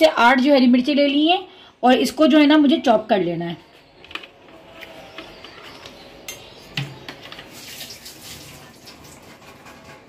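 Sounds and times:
steel pots and utensils clinking: 0:07.1 - 0:10.0.

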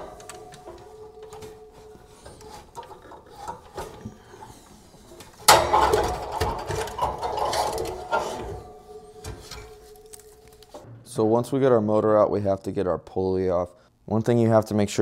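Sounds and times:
loud metal clunk: 0:00.0 - 0:04.6, 0:05.4 - 0:11.1
quiet knocks and handling: 0:00.0 - 0:10.9
metal scraping and rattling: 0:00.0 - 0:11.6.

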